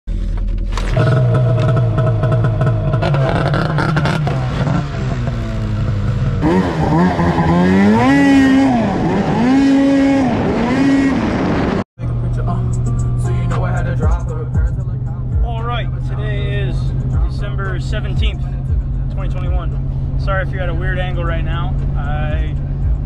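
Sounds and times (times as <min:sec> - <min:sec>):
snowmobile engine revving: 0:00.9 - 0:11.8.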